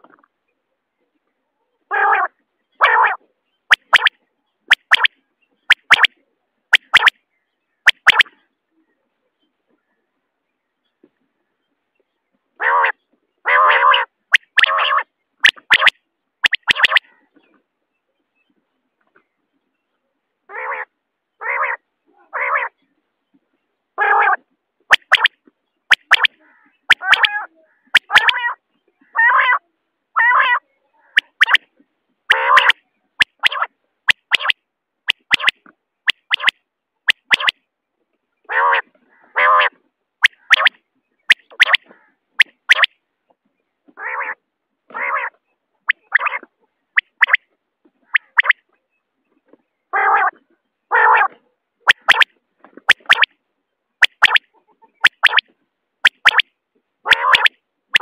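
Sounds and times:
quail calling: 1.9s - 4.1s, 4.7s - 5.1s, 5.7s - 6.1s, 6.7s - 7.1s, 7.9s - 8.4s, 12.6s - 17.5s, 20.5s - 22.8s, 24.0s - 25.3s, 25.9s - 29.6s, 30.2s - 31.7s, 32.3s - 36.5s, 38.5s - 42.9s, 44.0s - 47.4s, 48.0s - 48.6s, 50.0s - 52.3s, 52.9s - 53.3s, 54.0s - 56.4s, 57.0s - 58.0s.

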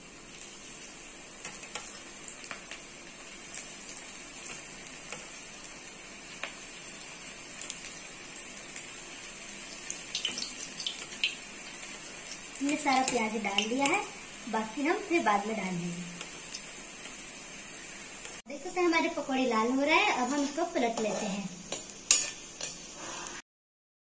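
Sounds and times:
batter deep-frying in oil: 0.0s - 23.4s
oil crackles and pops: 9.6s - 14.2s.

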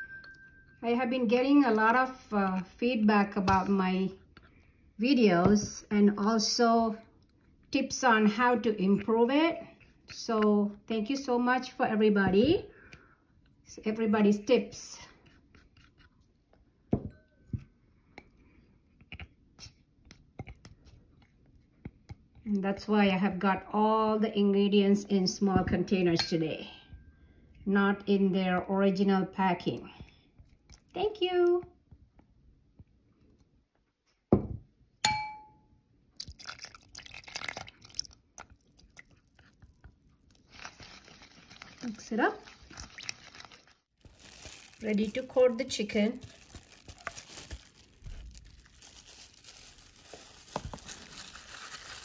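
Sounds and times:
sauce pouring into bowl: 36.2s - 41.8s, 42.4s - 43.8s.

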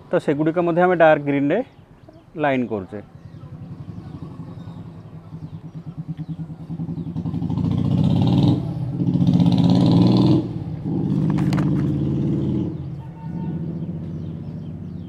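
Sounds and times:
passing vehicle engine: 3.3s - 15.0s.

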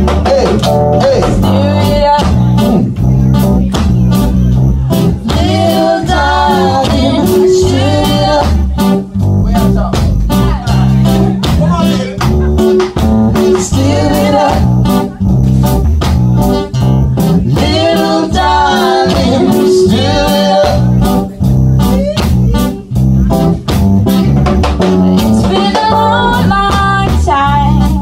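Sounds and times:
acoustic guitar: 0.0s - 28.0s
drums: 0.0s - 28.0s
keyboard: 0.0s - 28.0s
person singing: 0.1s - 3.0s, 4.9s - 9.0s, 13.4s - 15.2s, 17.2s - 22.8s, 25.1s - 28.0s.

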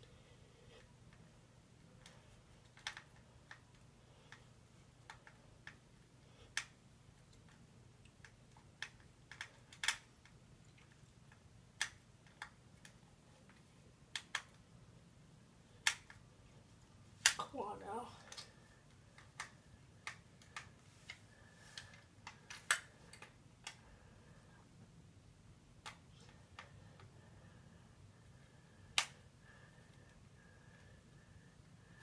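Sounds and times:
screwdriver clicking on plastic toy: 2.0s - 3.7s, 5.0s - 5.8s, 7.3s - 13.0s, 14.1s - 14.6s.

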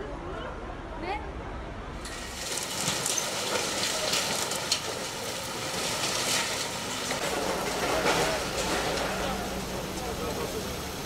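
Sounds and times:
knocks and clatter: 2.0s - 9.7s
vehicle engines and machinery din: 2.0s - 11.0s.

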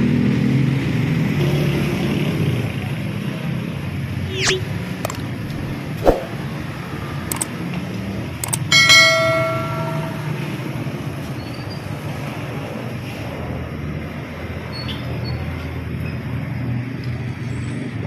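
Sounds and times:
ringing metallic clang: 8.4s - 11.6s.

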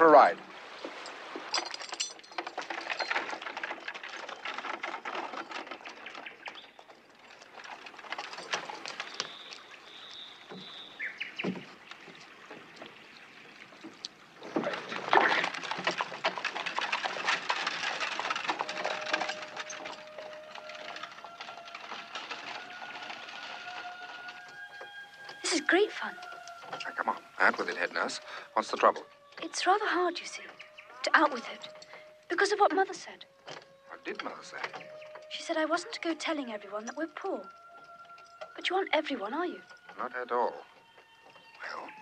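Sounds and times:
water splashing: 0.0s - 32.8s
cart wheels rolling over stones: 0.0s - 42.0s
horse hooves clopping: 0.6s - 42.0s.

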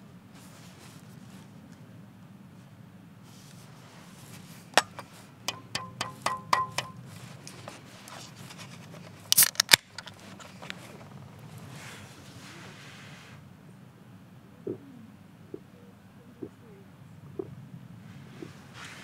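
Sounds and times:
metallic taps on can top: 4.8s - 7.0s
ring-pull cracking open with hiss: 9.3s - 10.0s.

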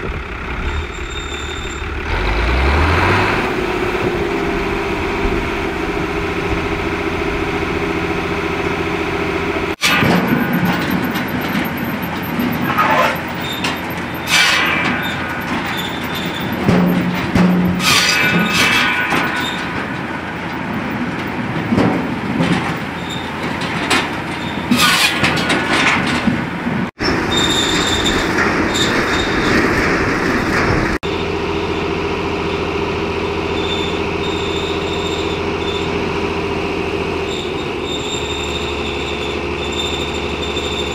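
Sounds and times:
tractor engine running: 0.0s - 40.9s
circular saw whining through logs: 31.1s - 40.9s.

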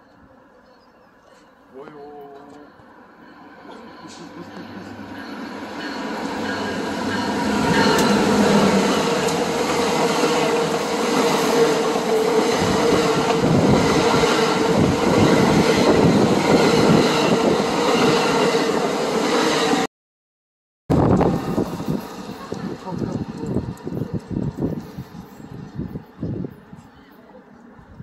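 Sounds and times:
train passing rumble: 1.6s - 19.9s, 20.9s - 28.0s
train wheels thudding: 5.3s - 11.3s.

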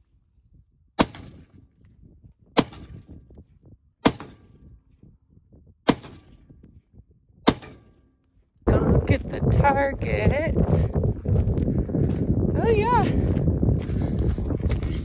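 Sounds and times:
rifle shots: 1.0s - 1.5s, 2.6s - 3.1s, 4.0s - 4.6s, 5.9s - 6.5s, 7.4s - 8.1s.

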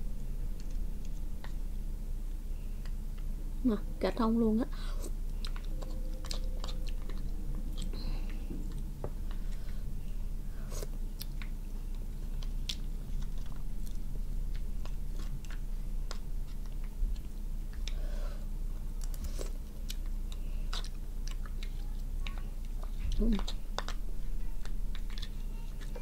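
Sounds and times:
low steady hum: 0.0s - 26.0s
chewing and mouth sounds: 5.0s - 9.8s, 10.6s - 18.0s, 18.7s - 26.0s.

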